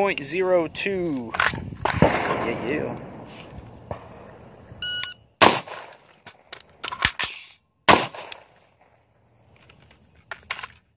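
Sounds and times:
rifle shots: 0:01.8 - 0:04.4, 0:05.4 - 0:07.2, 0:07.9 - 0:08.9
shot timer beep: 0:04.8 - 0:05.2
metallic clicks of magazine change: 0:05.0 - 0:07.6, 0:08.2 - 0:08.8.

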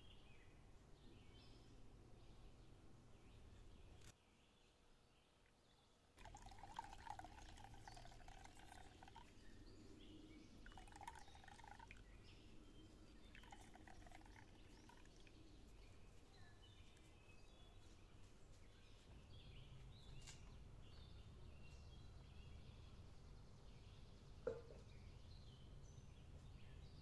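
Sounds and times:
juice trickling into clay pot: 0:06.1 - 0:15.8.

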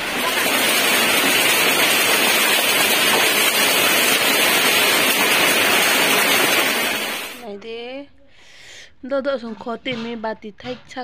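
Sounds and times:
heavy rain pouring: 0:00.0 - 0:07.4.

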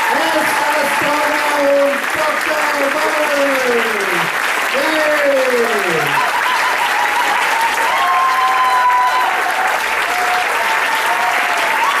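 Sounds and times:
audience applauding: 0:00.0 - 0:12.0
drawn-out cheers: 0:05.0 - 0:12.0.

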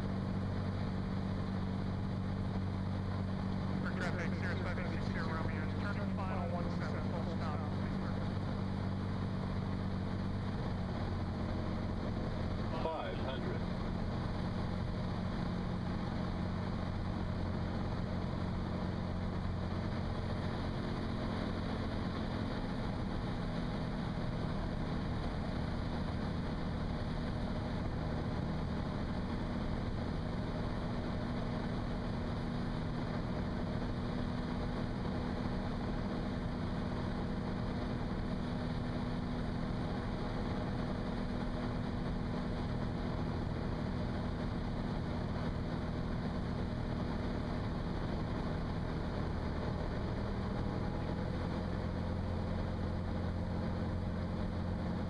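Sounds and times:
aircraft engine and propeller droning: 0:00.0 - 0:55.0.

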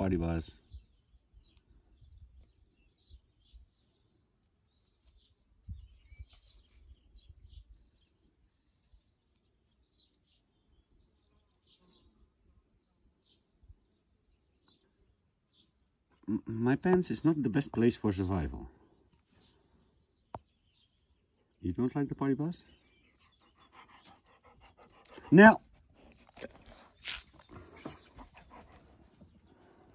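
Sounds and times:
faint bird chirps: 0:04.8 - 0:17.5.

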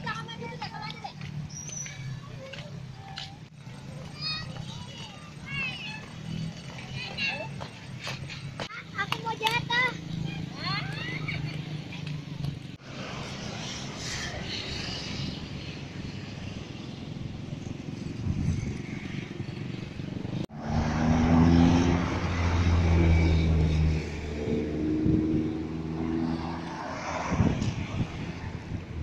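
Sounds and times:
cars driving past: 0:03.5 - 0:29.0
loud engine hum: 0:20.4 - 0:29.0.

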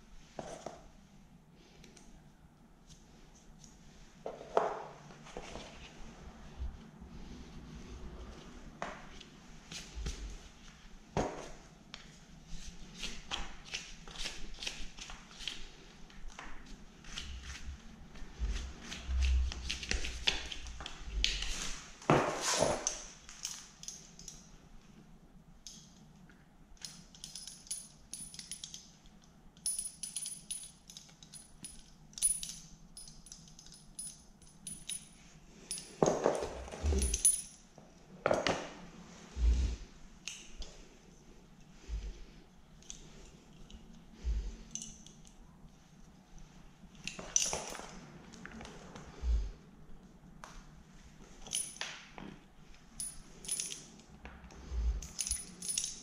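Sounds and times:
hand tools clinking: 0:29.6 - 0:37.7, 0:51.4 - 0:51.9, 0:53.0 - 0:54.0, 0:55.0 - 0:56.0.

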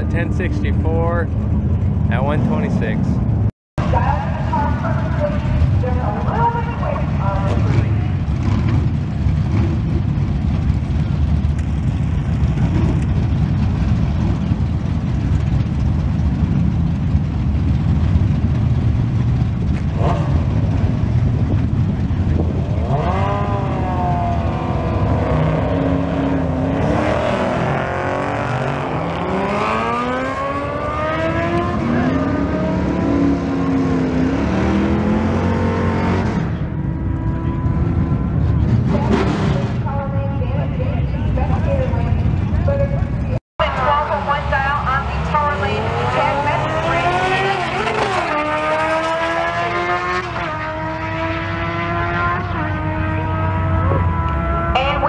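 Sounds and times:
engines idling with heavy rumble: 0:00.0 - 0:26.6, 0:36.6 - 0:47.0
engines revving and accelerating: 0:00.0 - 0:39.9, 0:41.3 - 0:55.0.

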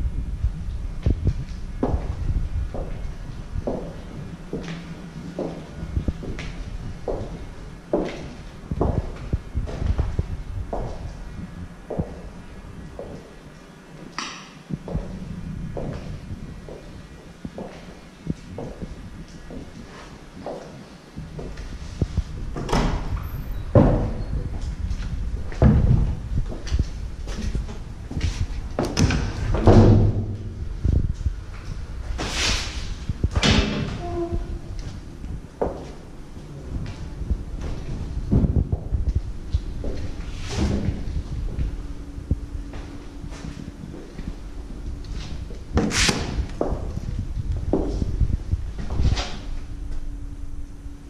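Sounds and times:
faint steady hum: 0:00.0 - 0:51.0
footsteps: 0:24.4 - 0:29.5, 0:34.0 - 0:50.1.

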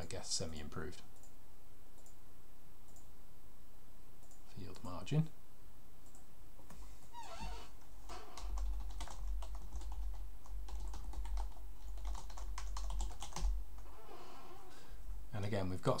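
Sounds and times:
keyboard typing: 0:08.3 - 0:13.9.

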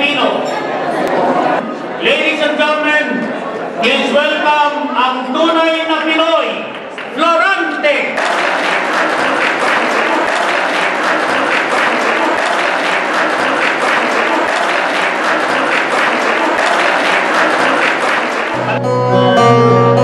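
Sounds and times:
audience applauding: 0:08.2 - 0:18.8.

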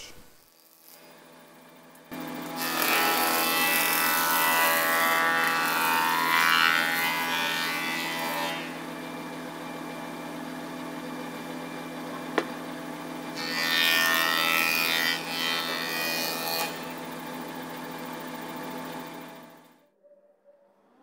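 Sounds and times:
planer cutting wood: 0:02.1 - 0:19.7
planer running idle: 0:15.2 - 0:19.8.

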